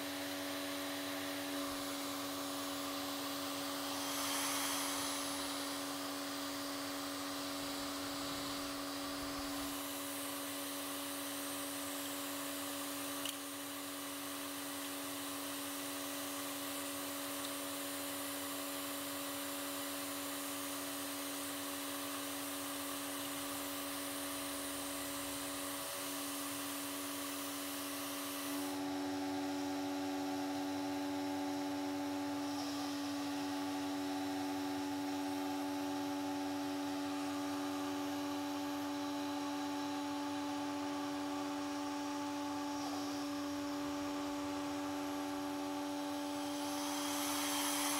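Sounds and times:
heat gun blowing: 0.0s - 28.9s, 32.3s - 33.9s, 37.1s - 47.9s
vacuum cleaner whining: 0.0s - 47.9s
click: 13.2s - 13.4s.

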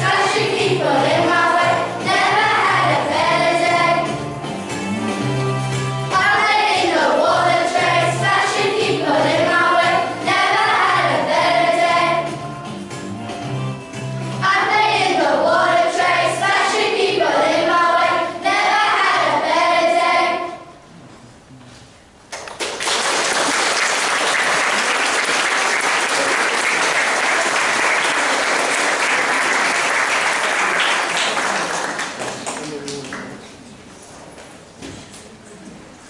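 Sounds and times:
children's choir singing: 0.0s - 4.3s, 6.1s - 12.4s, 14.4s - 20.8s
musical accompaniment: 0.0s - 20.6s
audience applause: 22.4s - 33.4s.

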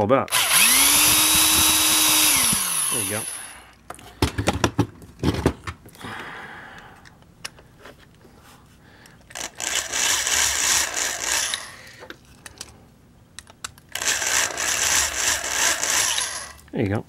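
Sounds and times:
electric drill grinding into metal: 0.3s - 3.8s, 9.3s - 12.0s, 13.9s - 16.6s.

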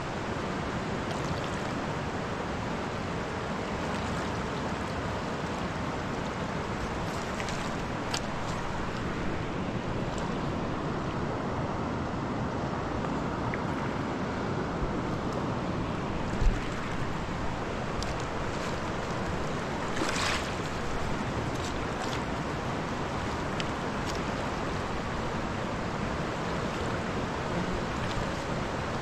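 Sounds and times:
big river rushing: 0.0s - 29.0s.

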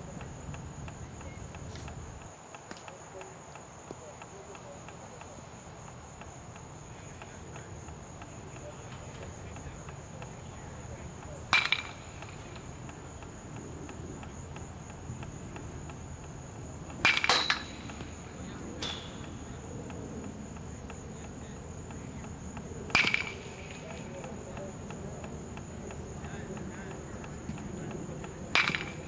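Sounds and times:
crickets chirring: 0.0s - 29.0s
metal bat hitting balls: 11.5s - 12.4s, 17.0s - 18.1s, 18.8s - 19.3s, 22.9s - 23.7s, 28.5s - 29.0s.

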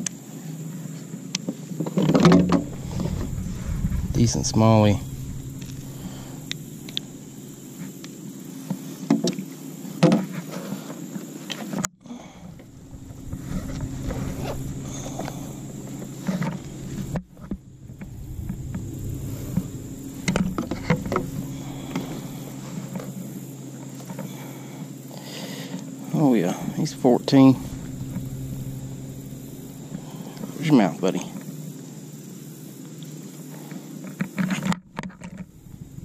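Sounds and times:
steady low hum: 2.4s - 8.5s, 12.0s - 32.4s, 34.9s - 36.0s.

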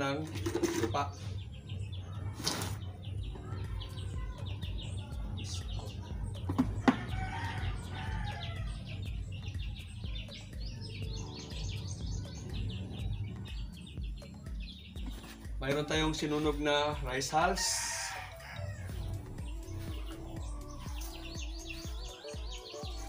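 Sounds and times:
birds chirping: 0.0s - 23.0s
rooster crowing: 6.8s - 8.8s, 17.5s - 19.2s.

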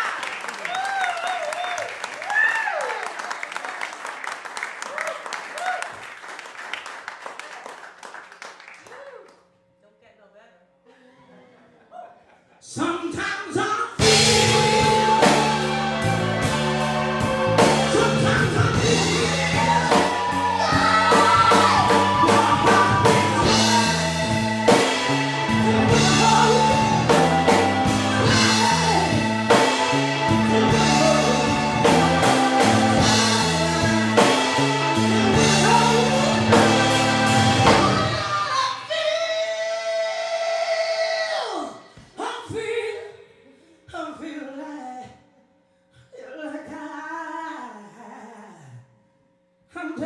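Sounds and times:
woman singing: 14.0s - 24.8s, 35.2s - 41.4s
blues-rock band playing: 14.0s - 38.7s.

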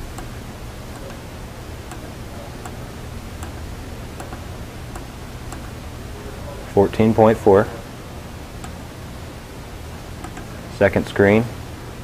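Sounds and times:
low hum: 0.0s - 12.0s
faint clicks: 3.4s - 5.8s, 8.6s - 8.8s, 10.2s - 10.6s.

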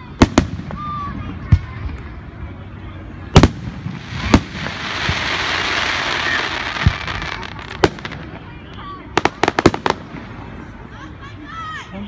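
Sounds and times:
firework hiss: 3.4s - 10.7s.

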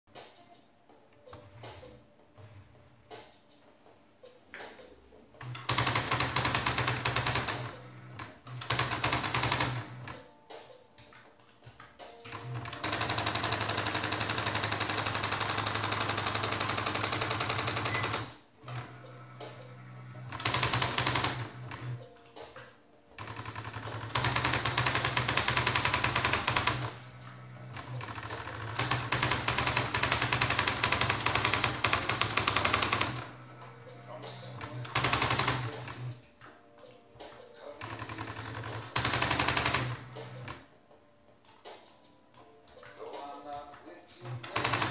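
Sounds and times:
electronic typewriter typing: 5.4s - 10.3s, 11.5s - 36.2s, 37.6s - 40.6s, 44.3s - 44.9s.

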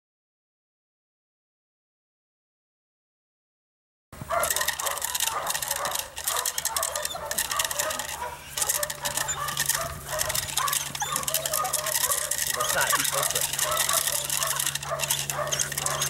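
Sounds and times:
dog barking: 4.2s - 16.0s
rapid crackle of clicks: 4.2s - 16.0s.

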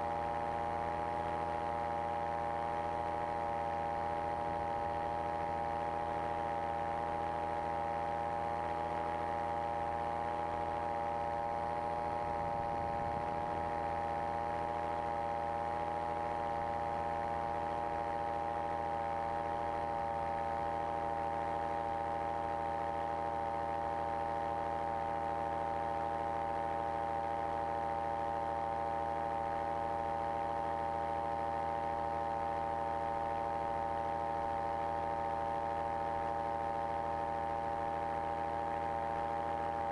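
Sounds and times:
microlight engine running: 2.6s - 26.0s.

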